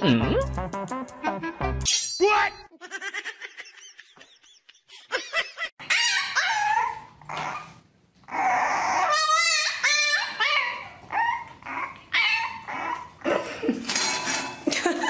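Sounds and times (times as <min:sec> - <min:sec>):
puppy whining and yelping: 0:05.8 - 0:13.3
dogs whining and yelping: 0:05.8 - 0:13.6.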